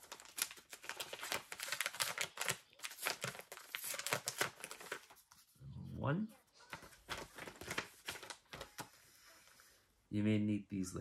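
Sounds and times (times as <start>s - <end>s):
paper crinkling and tearing: 0.0s - 5.5s, 6.6s - 9.5s.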